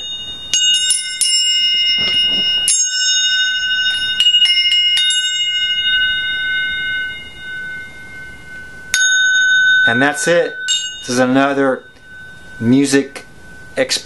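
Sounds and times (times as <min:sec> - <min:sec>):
metal blades clinking and ringing: 0:00.0 - 0:14.0.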